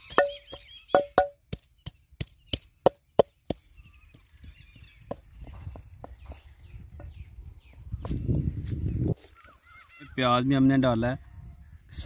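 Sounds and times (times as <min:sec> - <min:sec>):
wooden pestle pounding in mortar: 0:00.0 - 0:06.2
birds chirping: 0:00.0 - 0:12.0.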